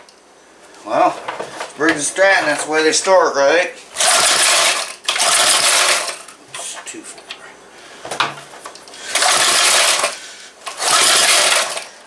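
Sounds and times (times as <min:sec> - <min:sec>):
engine pull-start cranking: 0:04.0 - 0:06.3, 0:09.1 - 0:12.0.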